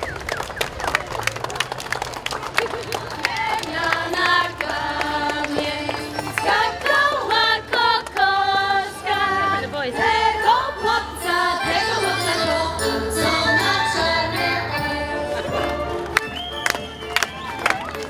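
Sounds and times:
group singing folk song: 3.1 - 16.5.

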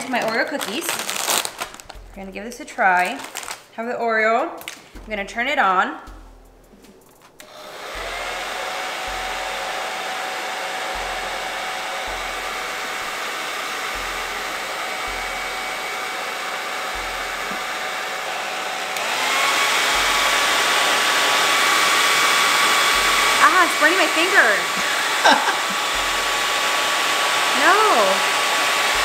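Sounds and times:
hair dryer running with whine: 7.4 - 29.0.

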